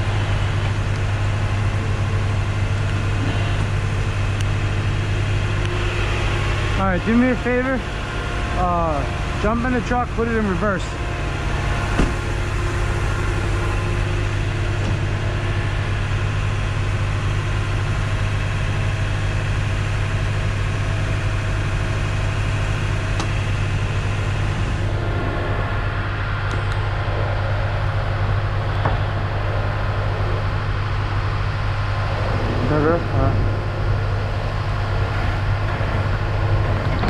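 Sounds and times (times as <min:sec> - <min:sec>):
truck engine idling: 0:00.0 - 0:37.0.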